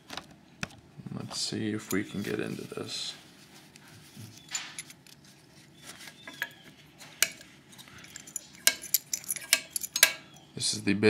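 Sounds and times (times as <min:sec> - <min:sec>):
keys jangling on a key ring: 0:08.0 - 0:10.3
light metal clicks: 0:08.0 - 0:10.5.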